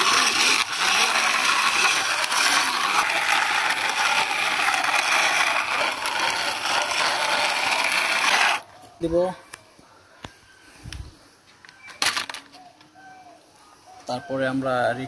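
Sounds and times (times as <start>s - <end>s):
toy car wheels scraping concrete: 0.0s - 8.7s.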